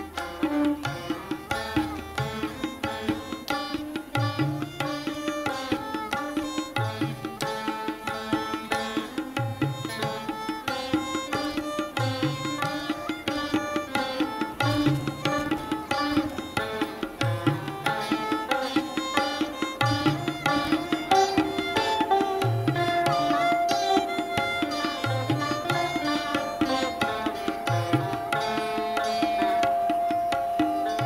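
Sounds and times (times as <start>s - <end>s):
plucked string melody: 0.0s - 31.0s.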